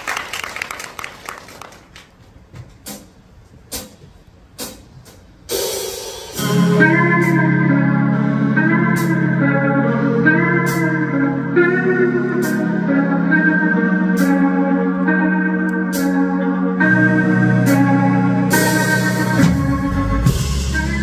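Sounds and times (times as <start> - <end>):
audience applause: 0.0 - 2.2
live pop band playing: 5.5 - 21.0
organ-like keyboard chords: 5.5 - 21.0
steady bass: 6.4 - 21.0.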